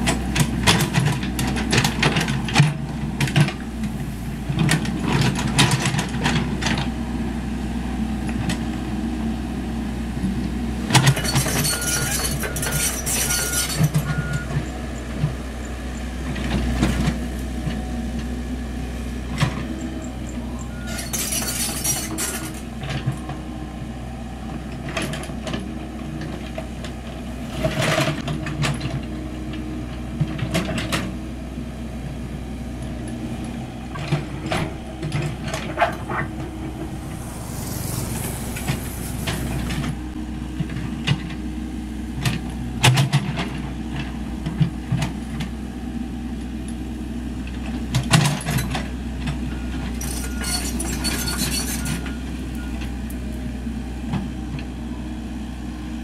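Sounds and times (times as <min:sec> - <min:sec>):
excavator diesel engine running: 0:00.0 - 0:56.0
bucket scraping soil: 0:34.2 - 0:40.2
brief hiss: 0:36.9 - 0:40.0.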